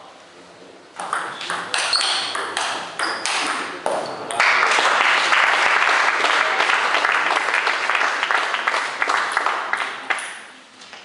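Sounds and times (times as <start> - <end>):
crowd applauding: 4.3 - 10.6.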